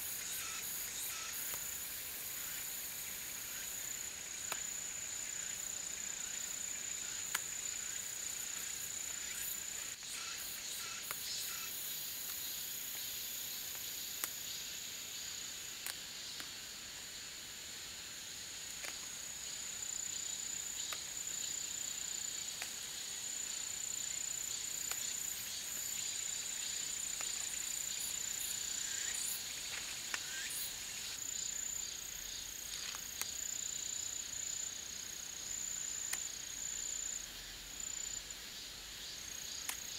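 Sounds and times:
insect trilling: 0.0s - 16.5s, 18.8s - 39.9s
faint clicks: 7.2s - 7.5s, 39.6s - 39.9s.

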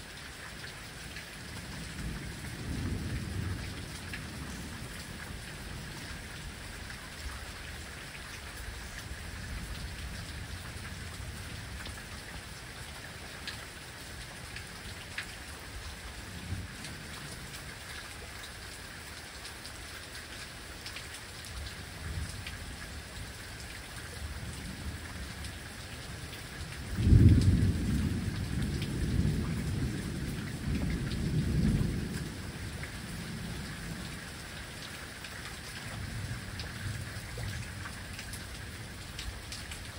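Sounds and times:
rain falling on lawn: 0.0s - 39.9s
thunder rumbling: 26.9s - 34.1s.

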